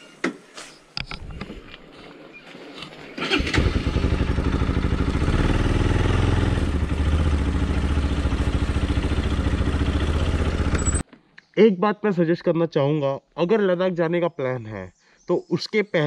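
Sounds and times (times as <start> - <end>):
motorcycle engine running: 3.3 - 11.0.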